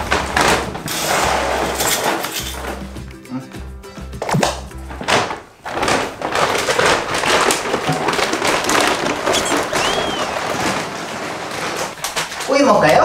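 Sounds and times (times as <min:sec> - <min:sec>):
dry kibble pouring: 0:05.8 - 0:11.9
short high whistle-like tone: 0:09.4 - 0:10.3.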